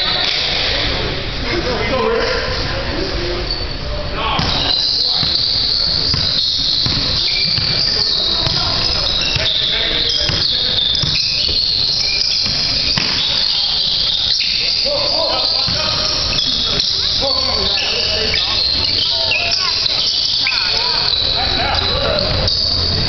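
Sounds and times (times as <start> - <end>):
scattered voices: 0.0 - 23.0
basketball bouncing: 4.4 - 14.4, 15.4 - 17.0
shoes on court: 4.4 - 22.4.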